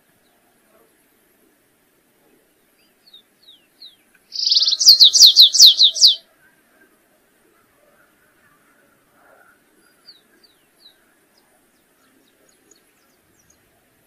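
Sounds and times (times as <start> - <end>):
bird singing: 2.6 - 6.2, 9.8 - 13.7.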